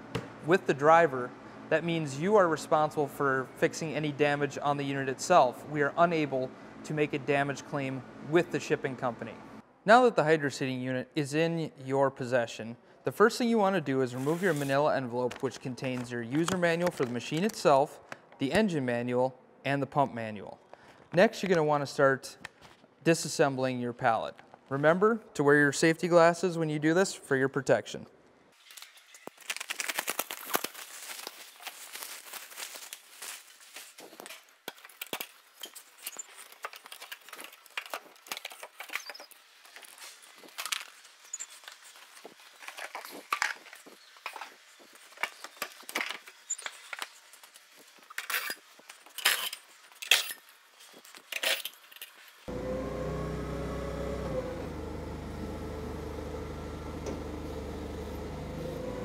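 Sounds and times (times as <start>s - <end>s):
forklift engine running: 52.5s - 59.0s.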